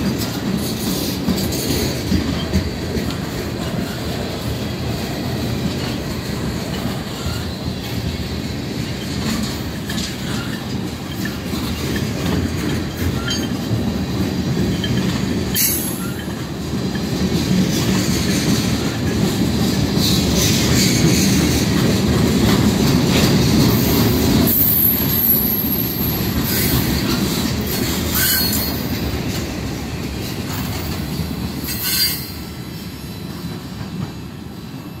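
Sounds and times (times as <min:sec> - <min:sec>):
train wheels rumbling on rails: 0:00.0 - 0:35.0
high-pitched wheel squeals: 0:07.2 - 0:07.6, 0:24.5 - 0:28.9, 0:31.6 - 0:33.7.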